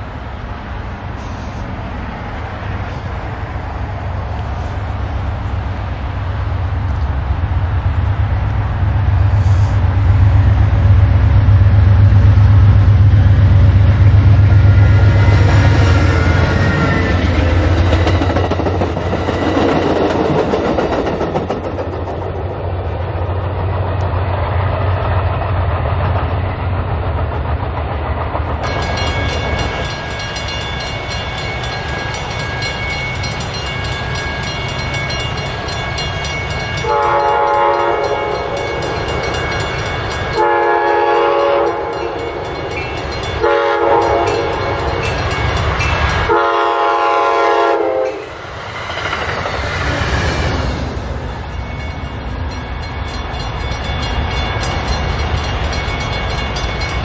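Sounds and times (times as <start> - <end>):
train rumbling past: 0.0 - 57.0
crossing bells ringing: 11.1 - 20.3, 28.6 - 48.6, 50.3 - 57.0
train horn: 36.8 - 38.8, 40.3 - 42.3, 43.4 - 44.9, 46.2 - 48.4.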